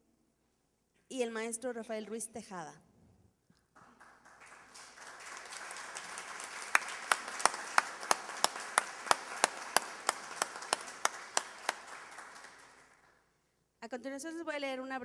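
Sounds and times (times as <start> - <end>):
audience applauding: 3.7 - 13.2
person clapping close by: 3.8 - 13.2.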